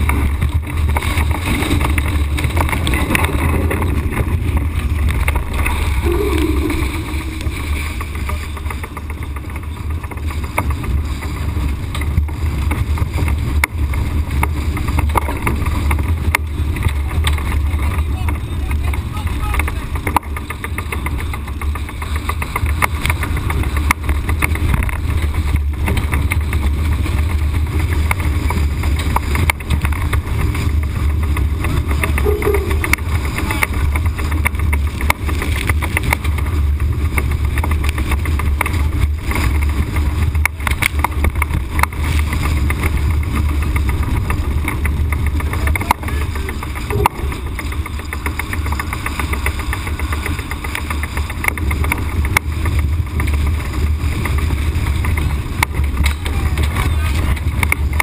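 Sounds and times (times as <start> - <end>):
water rushing along hull: 0.0 - 58.0
wind buffeting microphone: 0.0 - 58.0.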